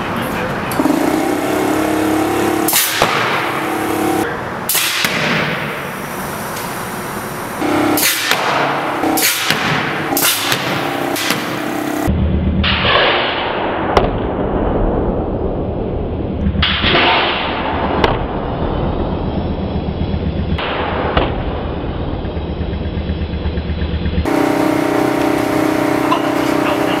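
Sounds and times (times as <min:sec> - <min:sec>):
pneumatic cannon blasts: 0:00.8 - 0:13.7
sharp crack: 0:02.6 - 0:03.6, 0:04.7 - 0:05.9, 0:08.0 - 0:11.7, 0:12.6 - 0:15.1, 0:16.4 - 0:18.6, 0:20.6 - 0:21.8
low steady rumble: 0:13.6 - 0:27.0.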